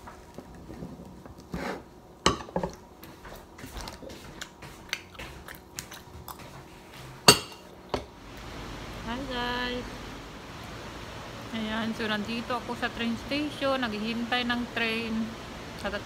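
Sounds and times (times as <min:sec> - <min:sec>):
chewing: 0:03.0 - 0:07.1.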